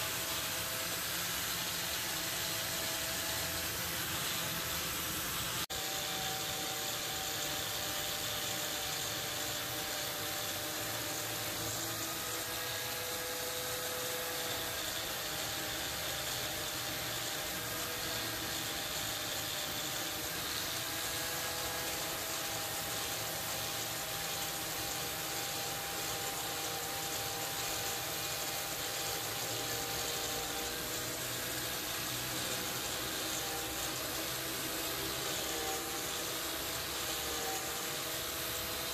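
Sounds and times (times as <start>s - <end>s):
angle grinder grinding steel: 0.0s - 38.9s.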